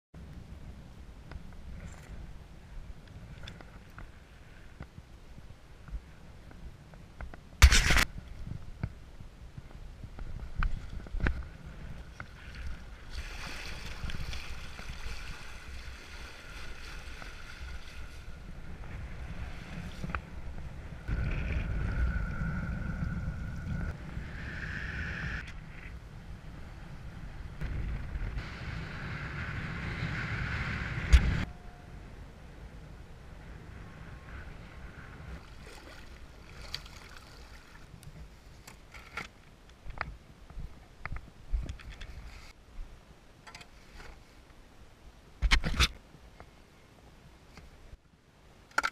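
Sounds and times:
wind buffeting microphone: 4.9 - 36.8
board hissing and splashing through water: 13.0 - 18.4.

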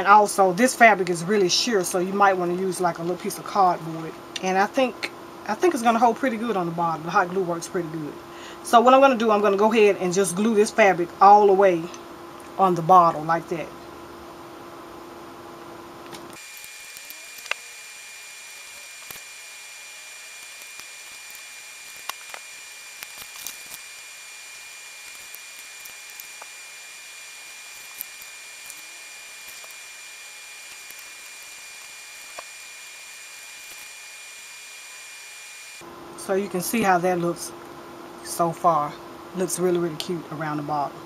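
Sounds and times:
high-pitched whine: 16.4 - 37.6.

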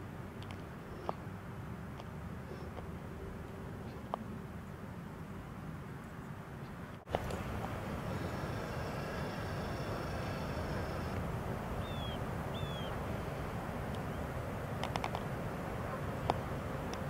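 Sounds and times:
bird chirping: 11.8 - 13.0.

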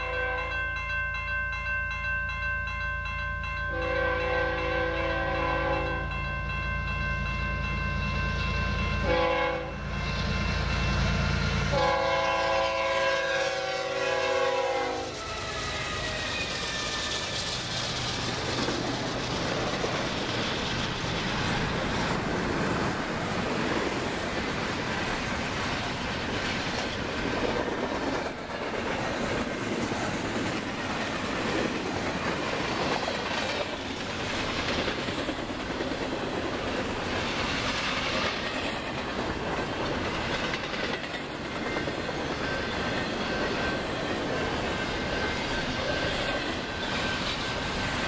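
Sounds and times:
freight train wheels rumbling on rails: 0.0 - 48.0
high wheel squeal: 15.0 - 18.4
clickety-clack over rail joints: 15.2 - 48.0.

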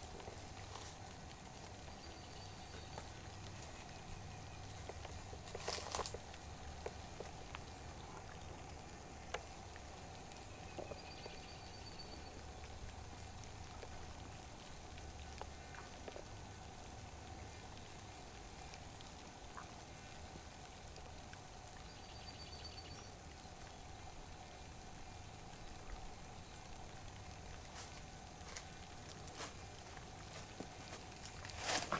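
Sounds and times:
small drips and clicks: 0.0 - 31.9
water trickling: 0.0 - 31.9.

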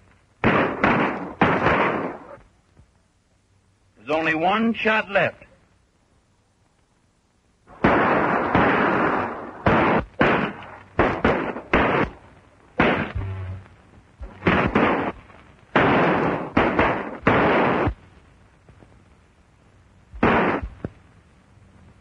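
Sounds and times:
gunshots with echo: 0.4 - 2.4, 7.7 - 12.2, 12.8 - 13.5, 14.2 - 15.2, 15.8 - 18.0, 20.2 - 20.8.

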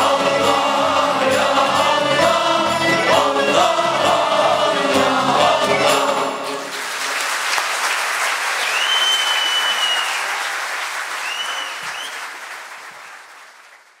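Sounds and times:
audience applauding: 6.4 - 14.0
high steady whistle tones: 8.7 - 10.2, 11.2 - 12.2.

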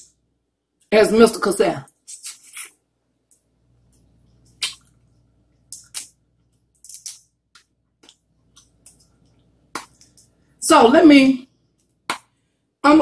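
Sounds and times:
wet sucking sounds: 2.1 - 2.8.

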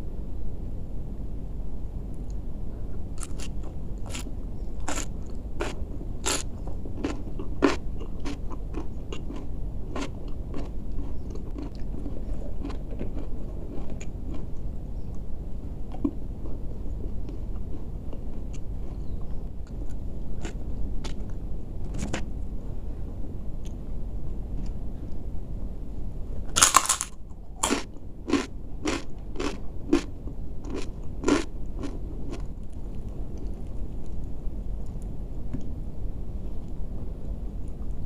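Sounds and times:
low steady hum: 0.0 - 38.0
crunching bite into crisp food: 3.2 - 14.4, 26.6 - 33.6
crisp chewing crunches: 3.2 - 15.2, 15.9 - 21.4, 26.6 - 35.0.

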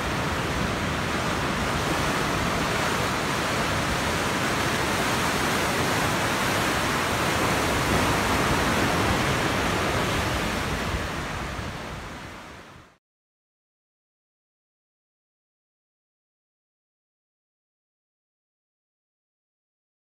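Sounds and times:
surf washing over rocks: 0.0 - 13.0.

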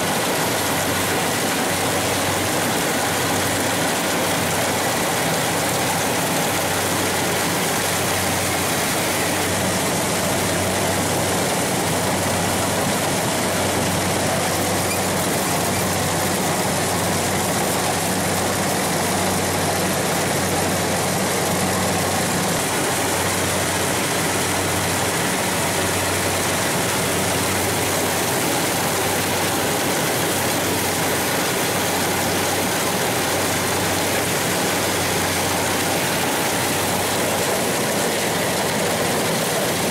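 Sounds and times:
combine harvester engine hum: 0.0 - 39.9.

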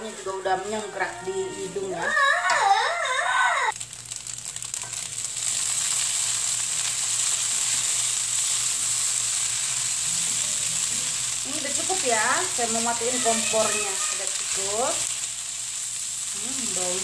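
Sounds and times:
rice sizzling in a wok: 0.0 - 2.2, 3.7 - 17.0.

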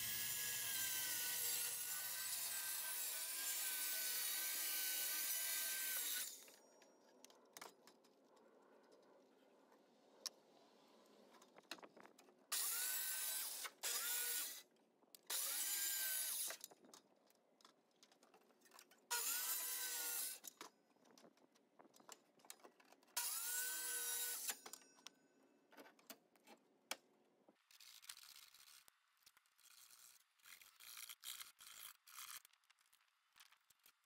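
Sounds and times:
power drill whirring: 12.5 - 14.6, 15.3 - 16.6, 19.1 - 20.4, 23.2 - 24.6.

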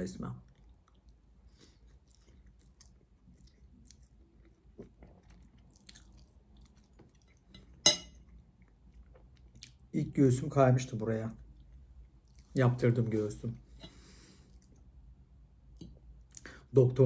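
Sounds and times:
chewing and wet mouth sounds: 0.3 - 10.0, 11.4 - 12.6, 14.2 - 15.0, 15.7 - 16.5
metal fork clinking on plate: 7.6 - 8.2.

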